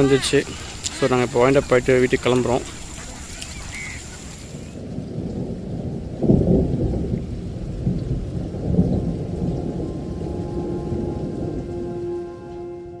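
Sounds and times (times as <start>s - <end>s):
rain: 0.0s - 13.0s
thunder rumbling: 4.7s - 13.0s.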